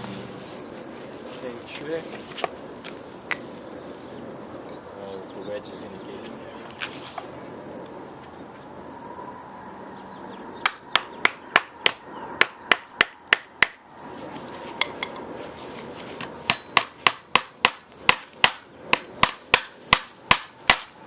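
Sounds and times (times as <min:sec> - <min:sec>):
hammer striking wooden wedge: 0:10.6 - 0:13.8, 0:16.5 - 0:20.9.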